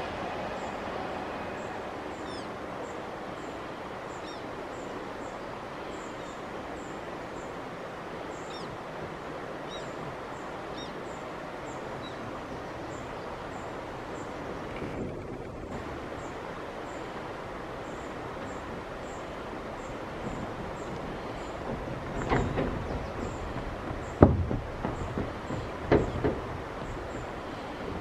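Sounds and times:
small birds chirping: 0:01.6 - 0:07.5.

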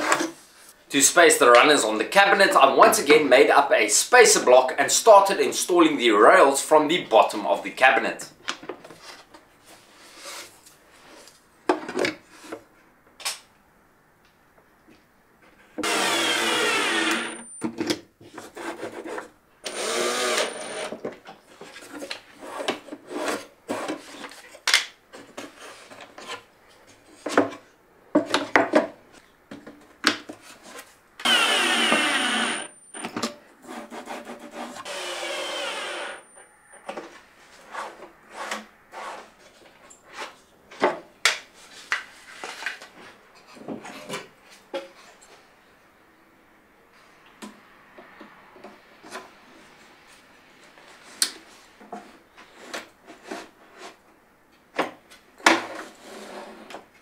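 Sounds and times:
cordless drill driving screws: 0:15.8 - 0:17.5, 0:19.6 - 0:20.9, 0:31.2 - 0:32.8, 0:34.8 - 0:36.2.

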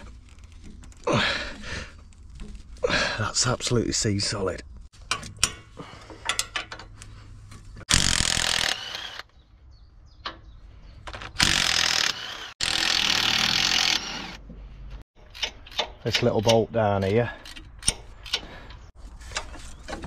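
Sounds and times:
small metal clicks: 0:05.0 - 0:07.2, 0:15.2 - 0:19.6
impact driver bursts: 0:07.9 - 0:09.2, 0:11.4 - 0:14.4.

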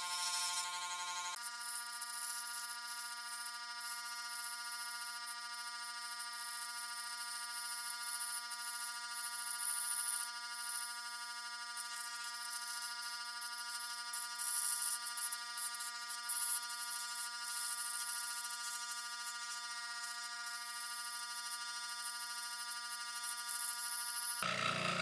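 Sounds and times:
saw blade cutting wood: 0:00.0 - 0:01.4, 0:24.4 - 0:25.0
scroll saw buzzing: 0:00.0 - 0:01.4, 0:23.7 - 0:25.0.

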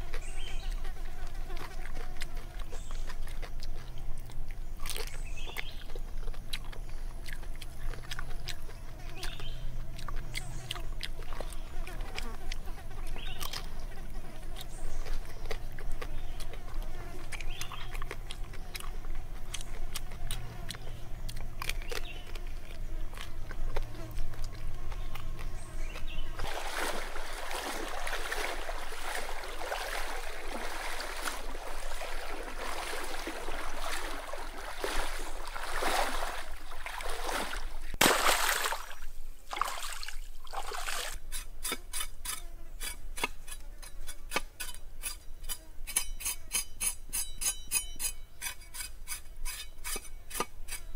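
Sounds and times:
person chewing: 0:00.0 - 0:13.8, 0:14.5 - 0:37.1
water sloshing and splashing: 0:25.9 - 0:41.2.

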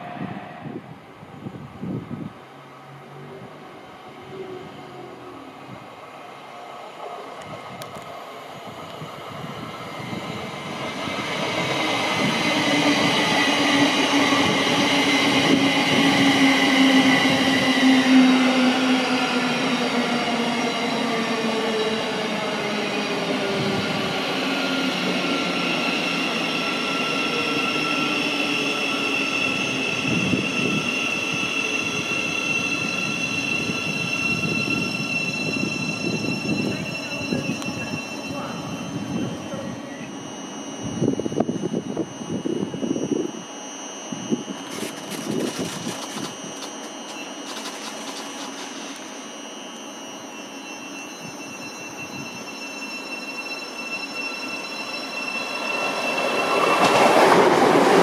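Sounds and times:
electric train drive whine: 0:00.0 - 0:58.0
wheels rumbling on rail: 0:44.2 - 0:49.4.

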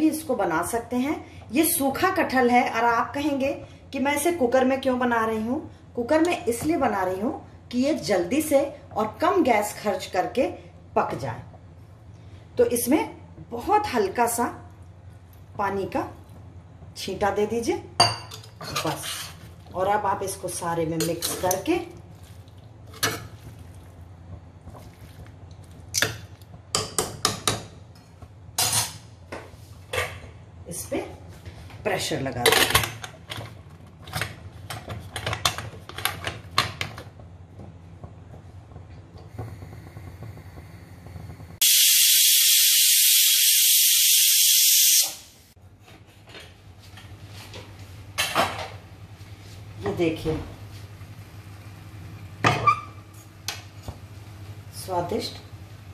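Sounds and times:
food squishing: 0:22.0 - 0:24.0
pressure pan steam hissing: 0:39.3 - 0:45.4.

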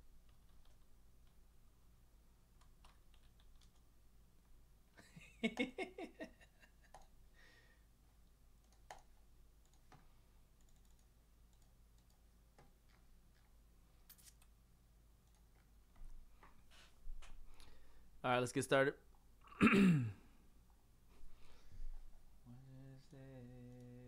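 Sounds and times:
keyboard typing: 0:00.2 - 0:01.4, 0:02.5 - 0:03.9, 0:06.9 - 0:07.2, 0:08.6 - 0:14.5.

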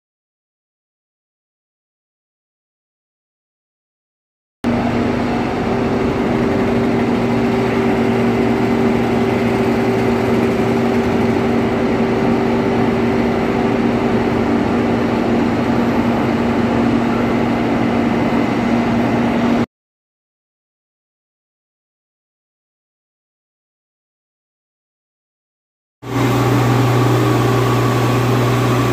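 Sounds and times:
heavy diesel engines running: 0:04.7 - 0:19.7, 0:26.0 - 0:28.9.

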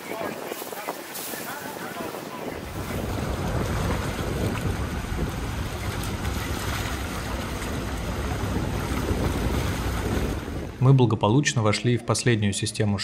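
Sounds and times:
wind buffeting microphone: 0:00.0 - 0:11.0
water rushing: 0:00.0 - 0:11.1
low rumble: 0:02.6 - 0:11.2.

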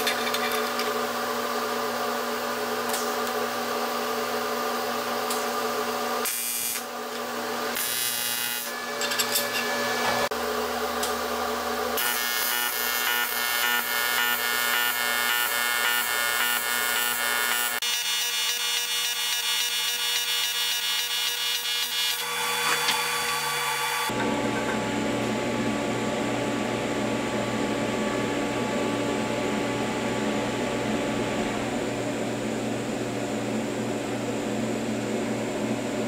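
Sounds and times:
welding arc buzzing: 0:06.2 - 0:24.2.

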